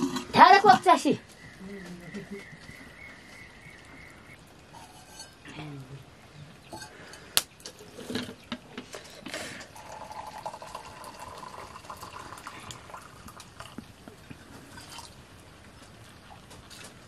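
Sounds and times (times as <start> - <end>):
liquid pouring into tumblers: 6.6 - 13.9.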